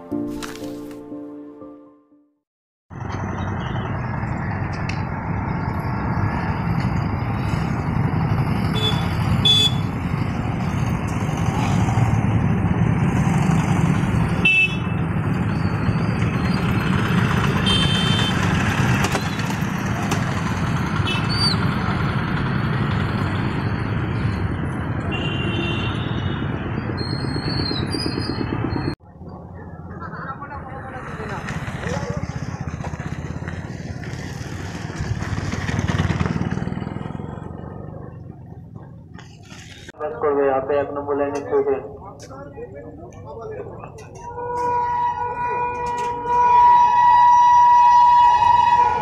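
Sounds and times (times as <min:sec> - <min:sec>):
traffic engine din: 0:02.9 - 0:49.0
horn toots: 0:08.7 - 0:09.9, 0:17.5 - 0:18.6, 0:44.2 - 0:49.0.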